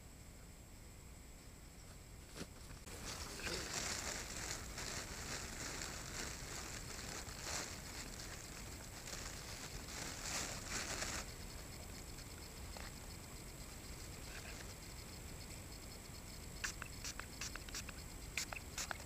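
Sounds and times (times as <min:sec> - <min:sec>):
rustling and crackling: 0:02.2 - 0:11.4.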